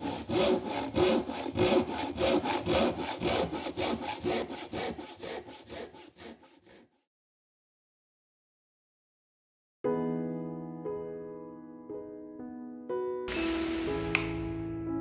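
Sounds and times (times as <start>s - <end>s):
hand saw cutting wood: 0.0s - 7.1s.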